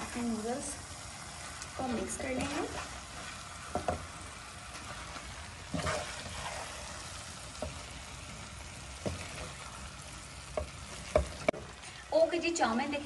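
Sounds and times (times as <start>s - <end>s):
noodles sizzling in a wok: 0.0s - 13.0s
spatula scraping a pan: 2.3s - 8.1s.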